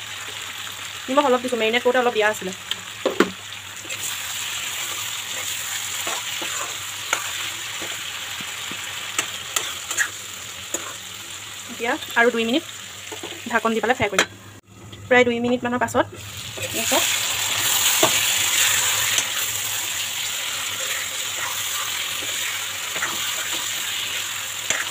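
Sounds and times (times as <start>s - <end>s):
chicken sizzling in hot oil: 0.0s - 14.6s, 16.2s - 24.9s
spoon scraping metal pan: 4.8s - 8.0s, 20.4s - 24.9s.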